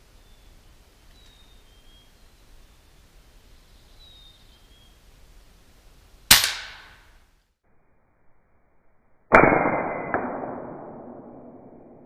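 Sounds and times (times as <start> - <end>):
slowed air rifle shot: 6.3 - 7.0, 9.3 - 12.0.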